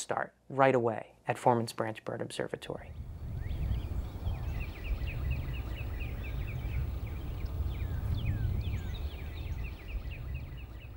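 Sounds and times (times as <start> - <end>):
small birds chirping: 2.8 - 10.9
steady low rumble: 2.8 - 10.9.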